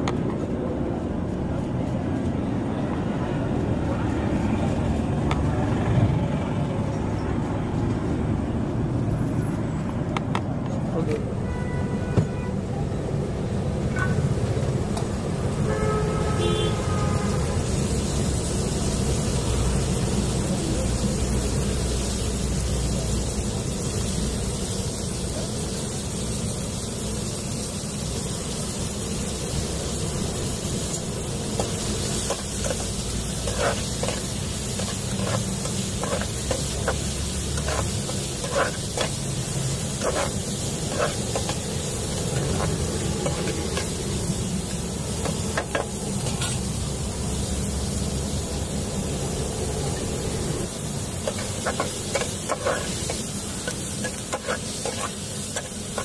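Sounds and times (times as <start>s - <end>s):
vegetables sizzling in a pan: 13.0s - 56.0s
metal spatula scraping a pan: 32.2s - 37.0s, 37.6s - 39.2s, 39.8s - 41.6s.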